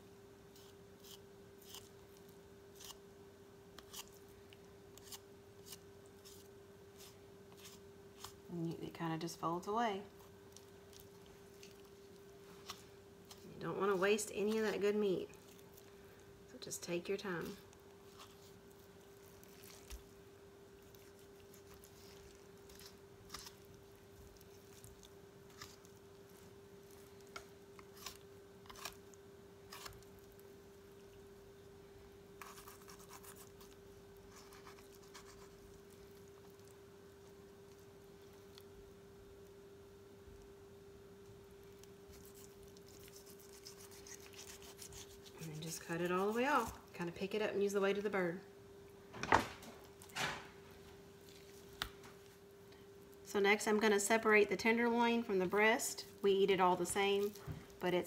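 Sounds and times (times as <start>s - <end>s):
faint steady hum: 0.0s - 58.0s
knife cutting raw chicken: 0.6s - 1.9s, 42.1s - 46.8s.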